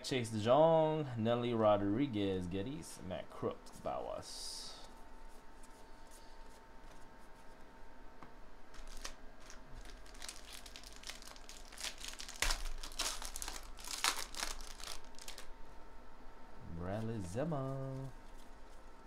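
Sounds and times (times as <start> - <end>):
foil wrapper crinkling and tearing: 8.7 - 15.5.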